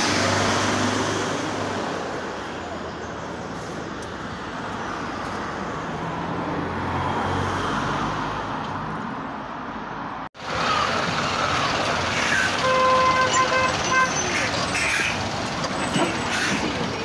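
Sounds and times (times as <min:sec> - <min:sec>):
truck engine close by: 0:00.0 - 0:03.1, 0:10.4 - 0:17.0
passing vehicle engine hum: 0:00.0 - 0:09.1
road noise: 0:00.0 - 0:17.0.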